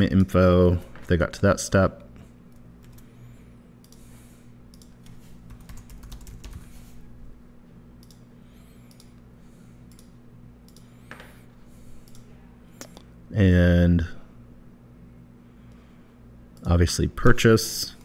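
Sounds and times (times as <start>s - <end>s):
low steady hum: 0.0s - 18.0s
computer keyboard typing: 4.7s - 6.8s.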